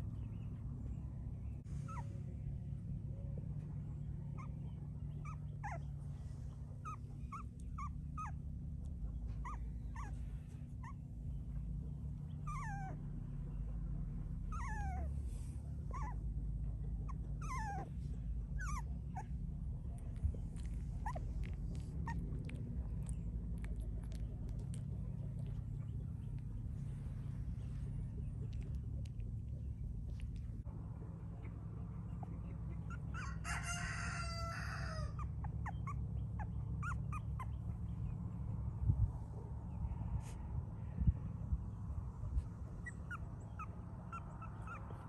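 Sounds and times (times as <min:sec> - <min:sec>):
low steady rumble: 0:00.0 - 0:45.0
puppies whimpering: 0:01.8 - 0:02.2, 0:04.3 - 0:11.1, 0:12.3 - 0:13.1, 0:14.5 - 0:16.3, 0:16.9 - 0:19.4, 0:20.0 - 0:26.8, 0:32.0 - 0:38.0, 0:42.6 - 0:45.0.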